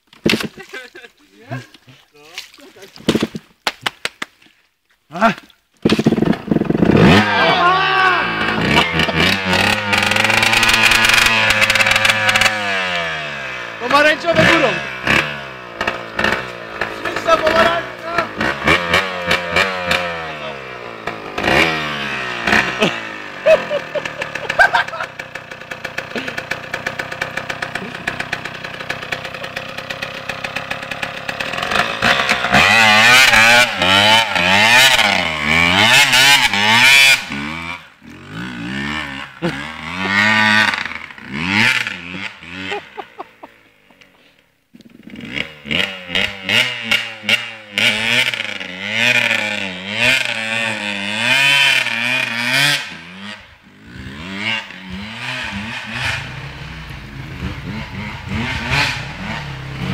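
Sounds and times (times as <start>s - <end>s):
motorcycle engine idling and revving: 5.8s - 59.9s.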